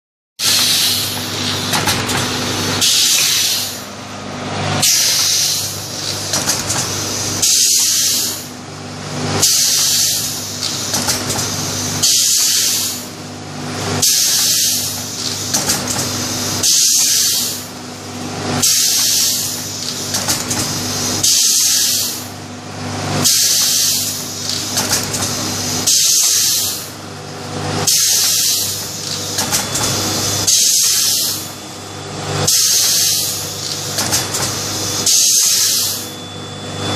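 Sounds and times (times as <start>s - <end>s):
compressed air hiss: 0.4s - 1.2s
steady machine hum: 0.4s - 36.9s.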